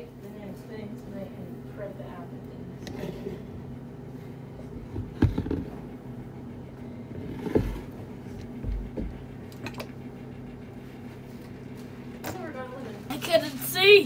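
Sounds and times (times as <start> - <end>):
low steady hum: 0.0 - 14.0
soft knocks and thumps: 4.8 - 5.9, 7.1 - 9.8.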